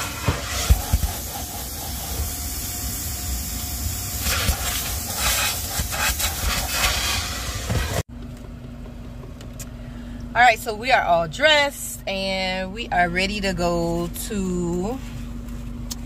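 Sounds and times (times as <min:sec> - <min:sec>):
vacuum hose sucking air: 0:00.0 - 0:08.0.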